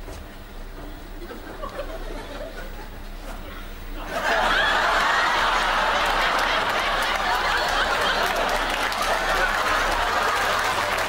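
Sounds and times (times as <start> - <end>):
studio audience laughing: 1.2 - 3.1, 4.0 - 11.0
scattered clapping: 4.9 - 11.0.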